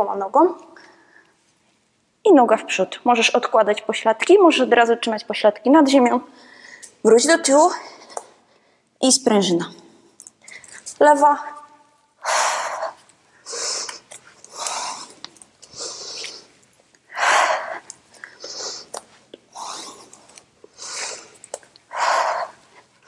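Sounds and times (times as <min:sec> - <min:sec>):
woman breathing hard: 0:12.2 - 0:16.5, 0:17.1 - 0:20.1, 0:20.7 - 0:22.9.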